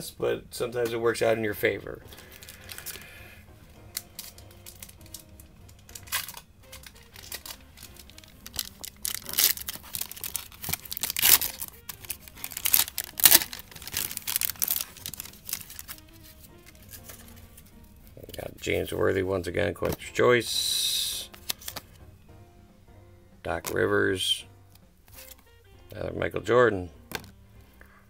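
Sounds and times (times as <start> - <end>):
foil wrapper tearing and crinkling: 2.1 - 17.8, 21.3 - 22.0, 25.1 - 25.6.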